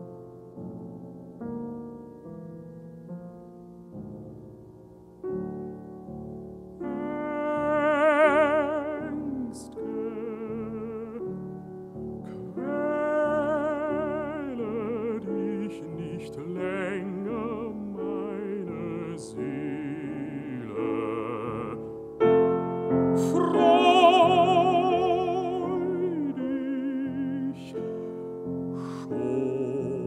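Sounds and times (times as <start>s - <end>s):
piano accompaniment: 0.0s - 30.0s
baritone singing with vibrato: 6.8s - 11.7s, 12.3s - 30.0s.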